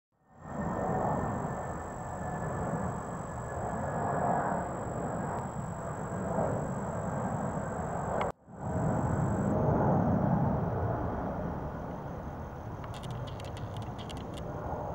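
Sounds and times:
faint high-pitched whine: 0.2s - 14.9s
low outdoor rumble: 0.4s - 14.9s
click: 8.1s - 8.4s.

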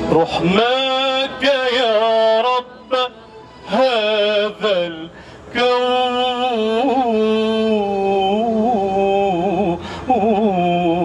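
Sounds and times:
man singing a hymn: 0.0s - 11.0s.

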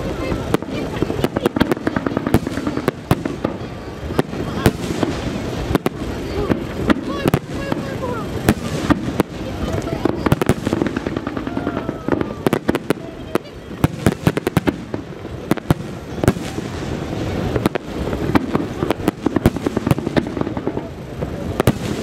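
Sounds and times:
fireworks bangs and cracks: 0.0s - 22.0s
fireworks rumble and crackle: 0.0s - 22.0s.

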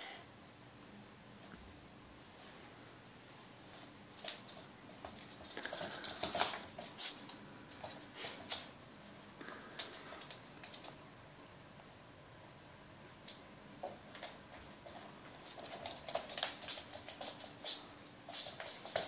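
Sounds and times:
dog claws clicking on floor: 4.1s - 8.7s, 9.7s - 11.0s, 13.2s - 19.0s.

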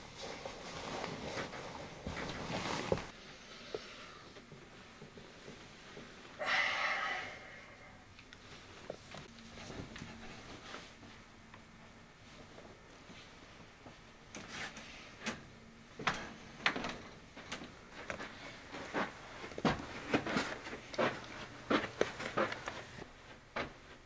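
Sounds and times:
footsteps in slippers: 17.3s - 24.0s.

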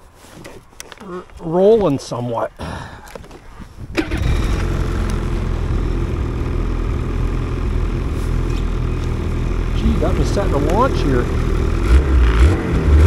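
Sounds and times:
snowmobile engine starting and idling: 3.9s - 13.0s.

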